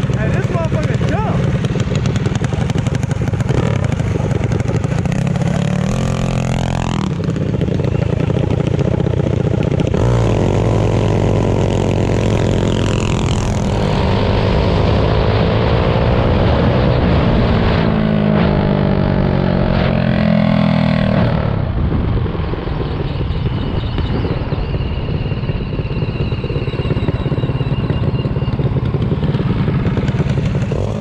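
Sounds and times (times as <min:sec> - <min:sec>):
mini bike engine accelerating: 0:00.0 - 0:16.2, 0:22.7 - 0:31.0.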